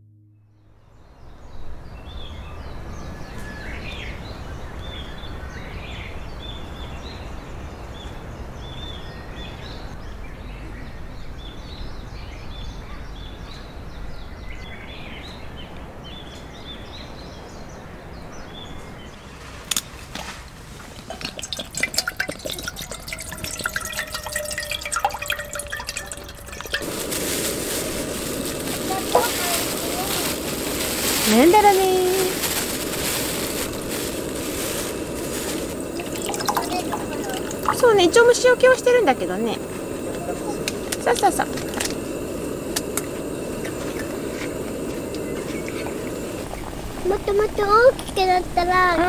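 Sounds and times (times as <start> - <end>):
high plinks: 20.8 - 26.9, 35.9 - 41.9
held ringing tone: 22.4 - 26.8.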